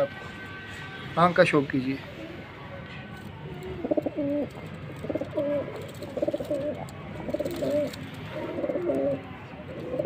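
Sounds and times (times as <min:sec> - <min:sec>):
pigeons cooing: 0:03.8 - 0:10.0.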